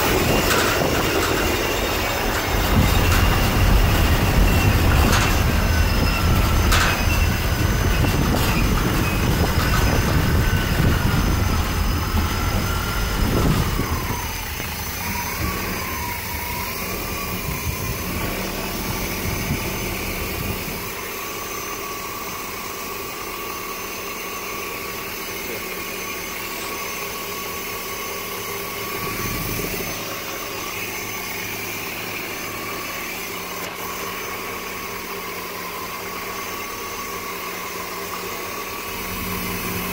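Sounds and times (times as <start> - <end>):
bus engine rumble: 0.0 - 21.1
engine whine: 0.0 - 39.9.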